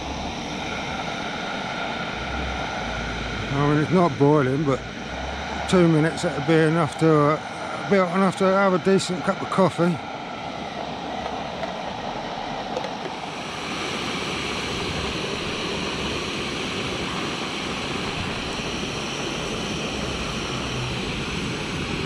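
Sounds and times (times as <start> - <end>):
gas stove burner rushing: 12.8 - 19.0.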